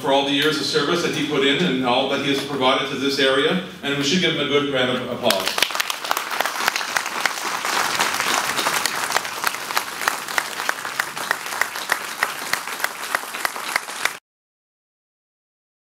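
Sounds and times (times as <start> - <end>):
audience applauding: 5.3 - 14.2.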